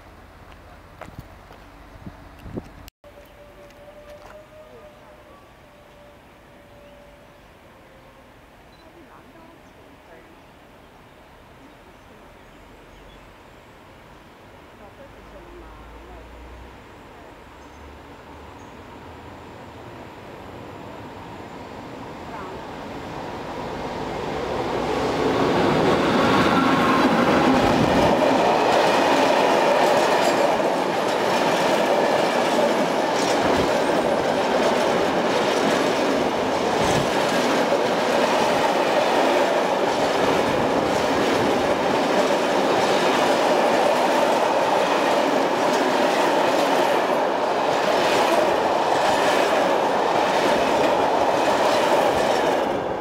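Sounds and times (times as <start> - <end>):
train wheels rumbling on rails: 22.3 - 53.0.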